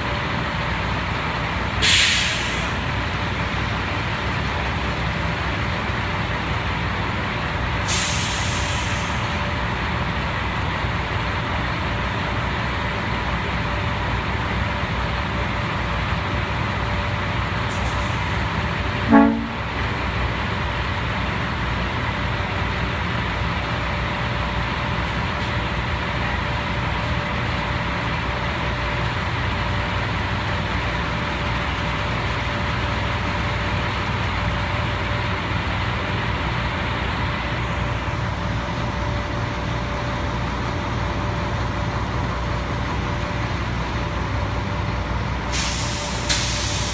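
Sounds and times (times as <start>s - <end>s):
mixer truck engine drone: 0.0s - 46.9s
horn toot: 19.1s - 19.7s.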